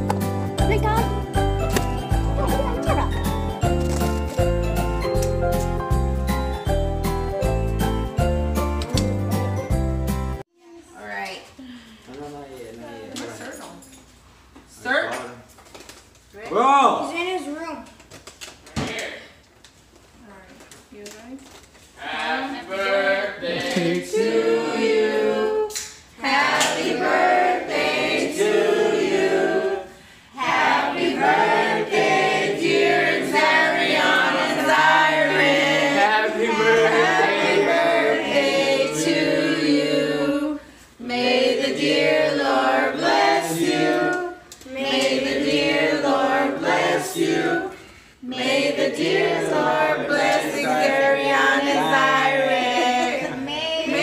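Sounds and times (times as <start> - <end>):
family singing a celebration song: 21.9 - 54.0.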